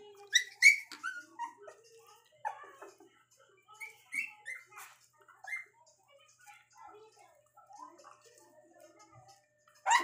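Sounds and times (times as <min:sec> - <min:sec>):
puppies whimpering: 0:00.0 - 0:05.9, 0:09.7 - 0:10.0.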